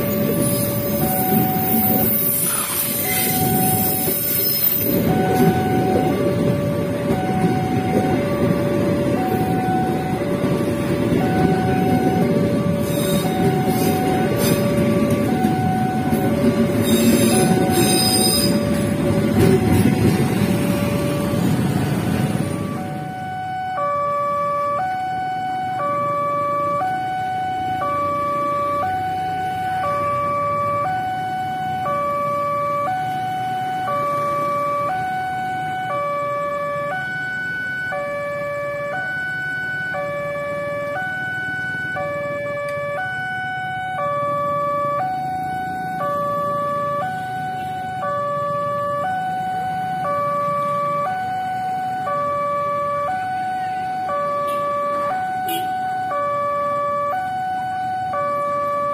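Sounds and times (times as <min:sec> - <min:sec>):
level crossing alarm chime: 0:00.0 - 0:02.3, 0:03.0 - 0:21.3
road traffic: 0:00.0 - 0:58.9.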